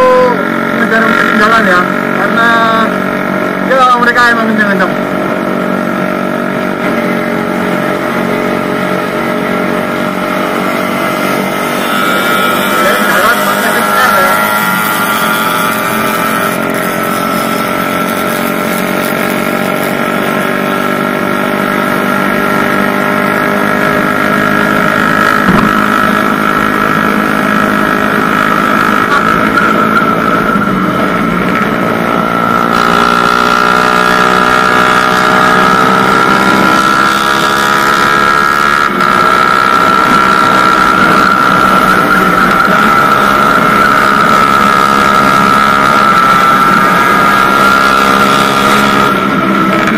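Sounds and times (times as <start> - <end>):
steady high whine: 0.0 - 37.1
motorcycle engine revving: 0.0 - 49.9.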